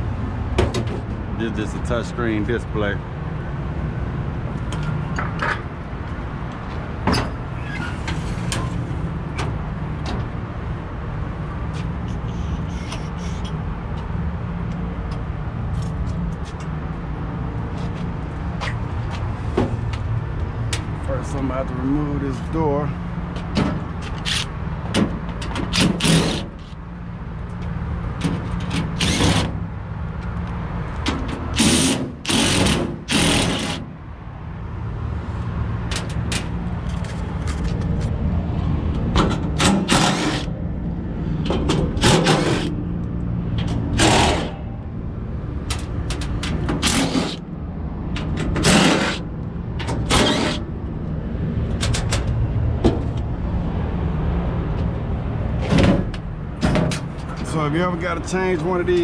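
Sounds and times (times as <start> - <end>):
impact driver bursts: 25.7 - 26.5, 29.0 - 29.6, 31.6 - 33.9, 48.6 - 49.2.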